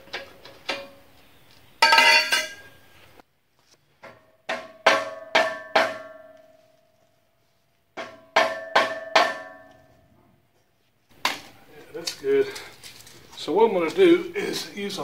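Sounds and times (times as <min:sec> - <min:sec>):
hollow pipe ringing: 0:01.8 - 0:02.8
mallet striking metal pipe: 0:04.5 - 0:06.5, 0:08.0 - 0:09.8.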